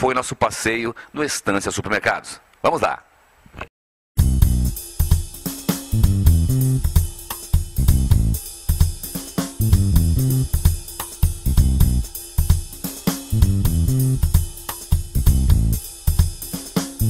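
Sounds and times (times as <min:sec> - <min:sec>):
background music with drum beat: 0:04.2 - 0:17.0.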